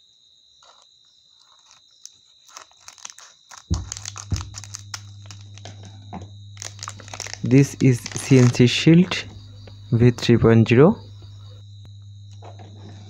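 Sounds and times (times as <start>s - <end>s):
foil packet crinkling: 0.6s - 5.9s, 6.6s - 9.3s
low steady hum: 2.4s - 13.0s.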